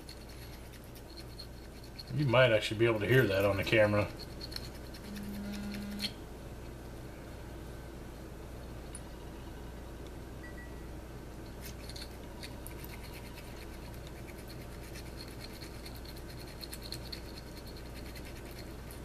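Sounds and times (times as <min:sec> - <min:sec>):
pipe cleaner scratching: 0:00.0 - 0:06.2
low steady hum: 0:00.0 - 0:19.0.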